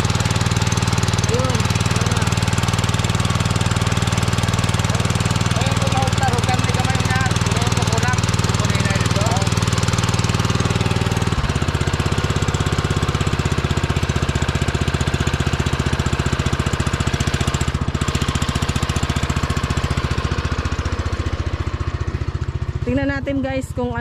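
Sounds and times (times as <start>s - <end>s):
small gasoline engine throbbing: 0.0s - 24.0s.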